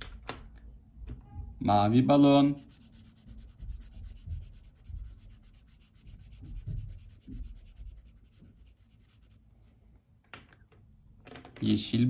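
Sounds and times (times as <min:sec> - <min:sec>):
marker rubbing on paper: 0:02.4 - 0:09.5.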